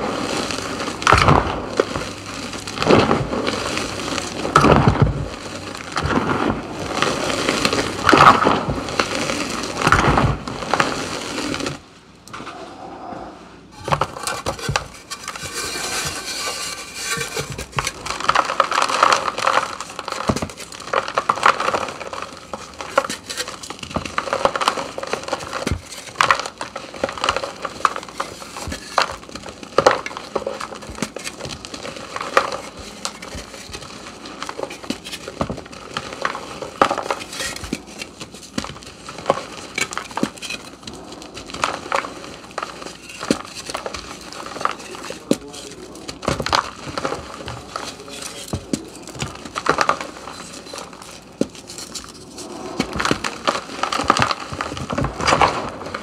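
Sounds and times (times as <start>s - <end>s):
crumbs falling into plastic basin: 0.0s - 11.8s, 13.8s - 56.0s
chalk crunching by hand: 13.8s - 55.0s.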